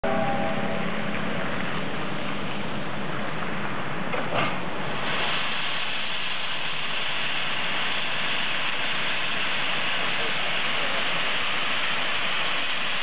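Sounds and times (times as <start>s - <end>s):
steam locomotive hissing: 4.2s - 13.0s.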